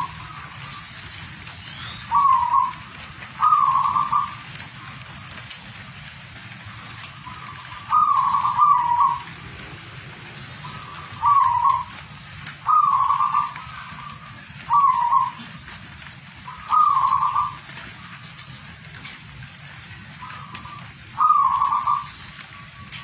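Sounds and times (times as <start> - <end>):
dove cooing: 0.0 - 1.4, 2.0 - 5.0, 6.8 - 9.7, 10.4 - 18.2, 20.0 - 23.0
steady background hiss: 0.0 - 23.0.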